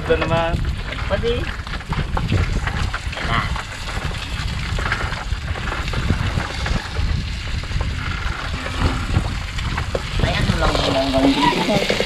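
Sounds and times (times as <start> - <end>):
sea washing around boat: 0.0 - 12.0
wind buffeting microphone: 0.0 - 12.0
spatula scraping frying pan: 7.8 - 12.0.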